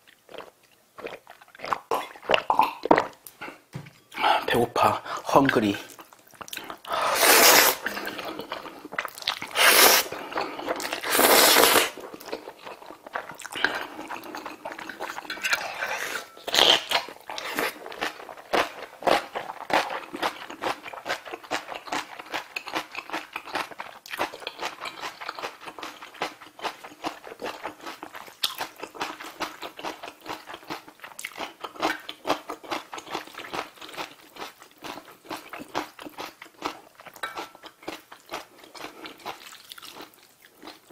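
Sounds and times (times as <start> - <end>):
person slurping noodles: 6.6 - 12.5, 13.4 - 18.1.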